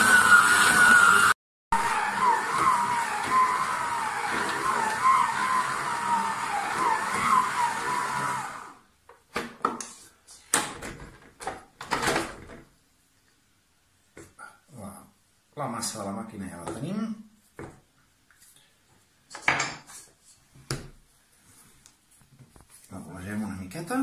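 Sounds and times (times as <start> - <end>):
stand mixer motor whine: 0.0 - 8.8.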